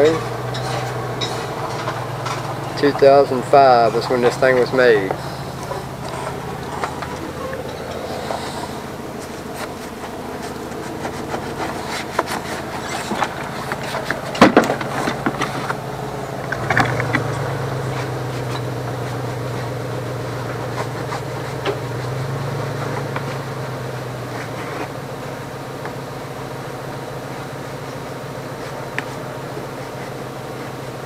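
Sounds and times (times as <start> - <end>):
rag rubbing: 0.0 - 31.0
steady low hum: 0.0 - 31.0
tools clicking and knocking on wood: 9.2 - 15.8.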